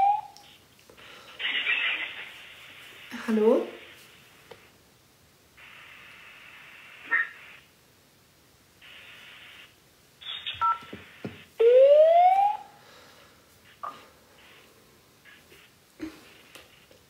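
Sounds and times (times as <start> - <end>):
telephone line hiss: 5.6 - 7.7, 8.8 - 12.6.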